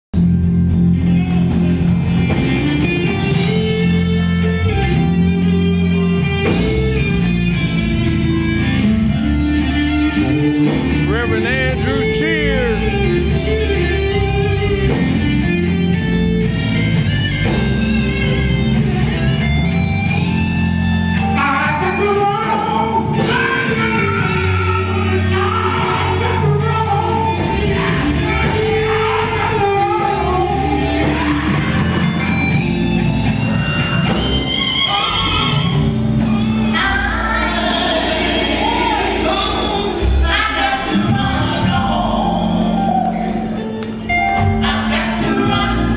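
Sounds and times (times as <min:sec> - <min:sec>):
band playing: 0:00.2 - 0:45.9
gospel group singing: 0:21.4 - 0:45.9.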